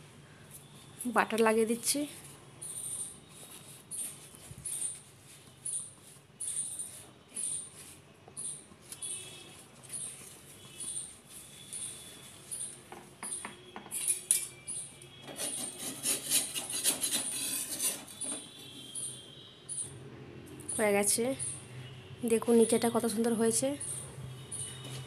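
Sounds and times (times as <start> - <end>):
soft high-pitched chirp: 2.6 - 15.2, 23.8 - 25.0
spatula scraping iron griddle: 15.3 - 18.4.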